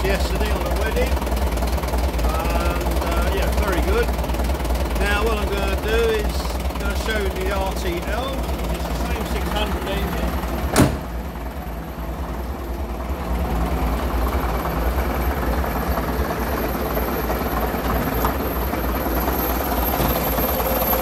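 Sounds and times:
diesel bus engines idling: 0.0 - 21.0
sharp knock: 10.7 - 11.1.

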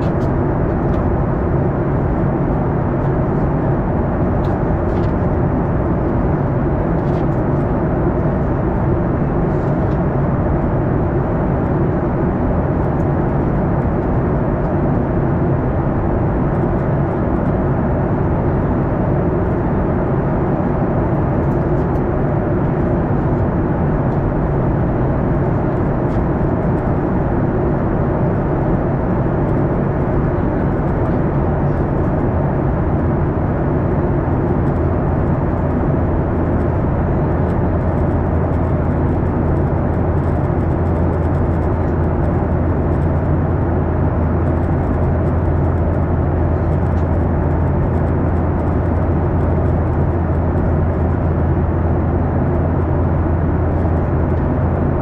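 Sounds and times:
jet engine roar in cabin: 0.0 - 55.0.

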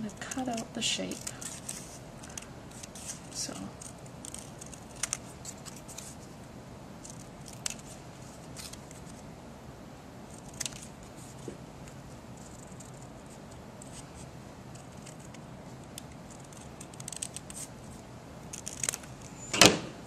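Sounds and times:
scissors snipping paper: 0.1 - 6.1, 7.0 - 9.2, 10.4 - 11.0, 14.7 - 17.7, 18.5 - 19.2.

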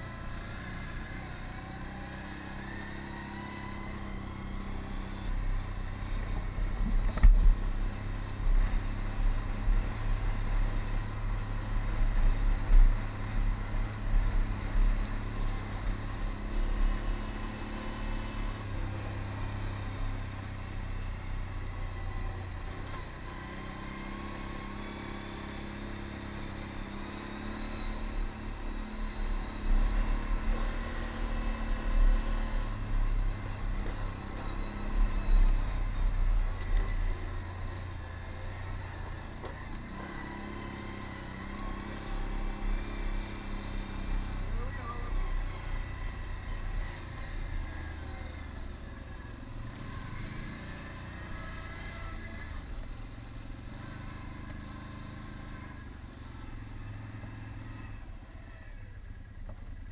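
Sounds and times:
atv engine running: 0.0 - 59.9.

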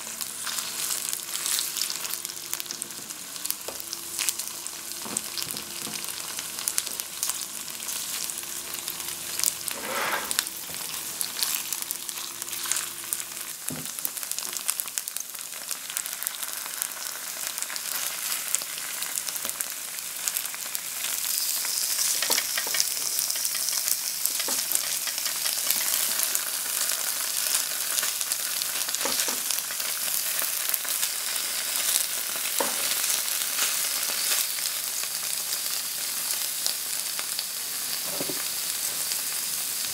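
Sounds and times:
tofu sizzling in a frying pan: 0.0 - 39.9
spatula scraping and tapping: 9.7 - 10.4.

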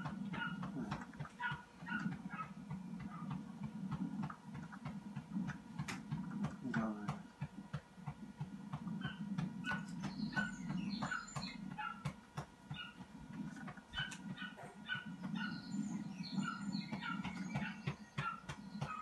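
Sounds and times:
dogs yelping and whining: 0.0 - 3.4, 9.0 - 12.1, 12.7 - 19.0
steady low hum: 0.0 - 19.0.

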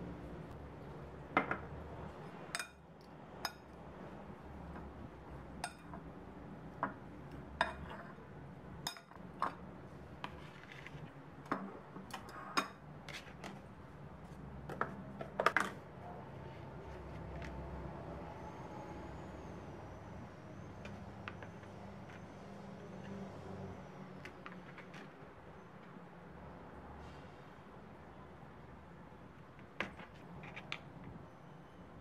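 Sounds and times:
fork clinking on ceramic bowl: 2.6 - 2.8.

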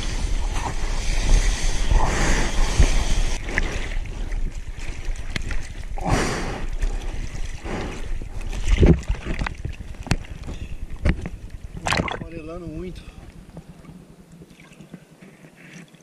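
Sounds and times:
wind on microphone: 0.0 - 15.0
sea water sloshing and splashing: 3.2 - 16.0.

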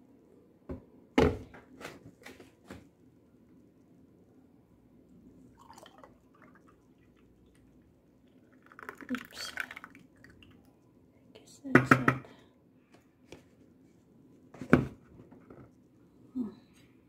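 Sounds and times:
milk pouring into a glass: 5.4 - 10.9.

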